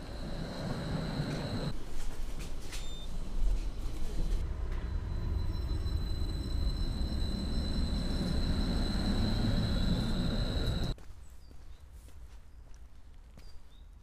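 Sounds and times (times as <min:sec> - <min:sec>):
whine rising in pitch: 0:00.0 - 0:01.7, 0:04.4 - 0:11.0
tram wheels rumbling on rails: 0:00.0 - 0:01.8, 0:03.2 - 0:11.0
high electric whine: 0:04.4 - 0:10.9.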